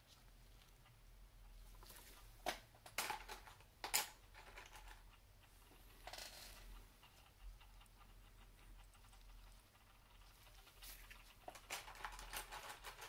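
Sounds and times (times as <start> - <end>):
soft rustle: 0.0 - 2.4, 5.4 - 13.0.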